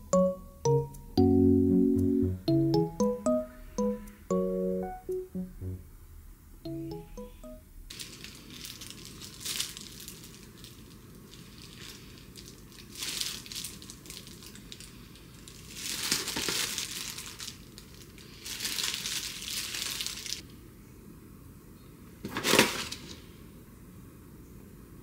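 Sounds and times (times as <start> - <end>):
plastic crinkling and rustling: 7.9 - 20.4, 22.2 - 23.3
plastic pouch crackle: 7.9 - 20.4.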